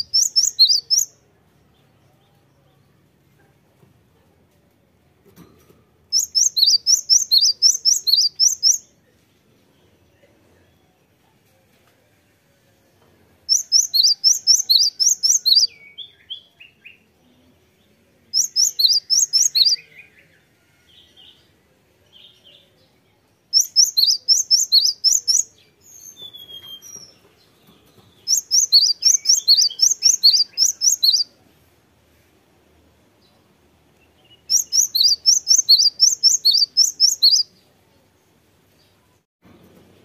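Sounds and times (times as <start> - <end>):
bird singing sharp high notes: 0.0 - 1.1, 6.1 - 8.9, 13.5 - 16.3, 23.6 - 26.9, 28.3 - 31.3, 34.5 - 37.5.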